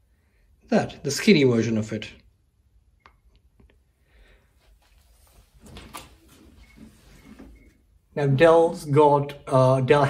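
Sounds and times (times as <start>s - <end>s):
cable rustle and knock: 4.8s - 7.7s.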